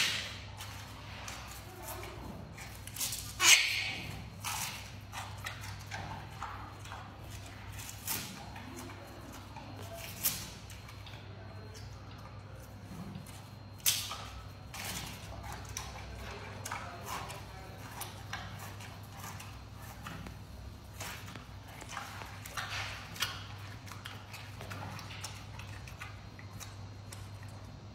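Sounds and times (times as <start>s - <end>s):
panda crunching bamboo: 0.0s - 10.8s
steady low hum: 0.0s - 27.9s.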